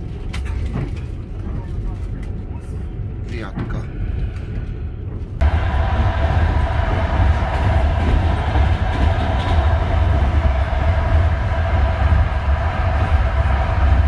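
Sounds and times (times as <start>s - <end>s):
train rumbling on rails: 0.0s - 14.0s.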